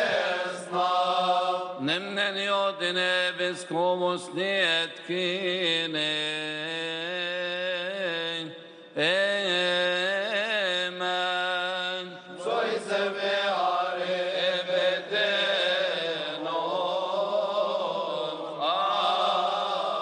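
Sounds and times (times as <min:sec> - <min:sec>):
group of voices chanting: 0:00.0 - 0:01.8.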